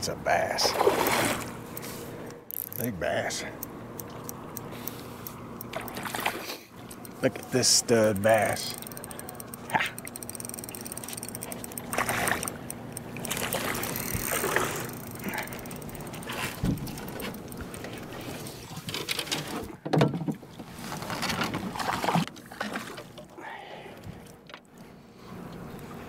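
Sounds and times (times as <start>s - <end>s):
fish splashing in water: 0.7s - 1.6s, 5.7s - 6.6s, 10.1s - 18.9s
fishing reel and rod handling: 0.8s - 19.6s.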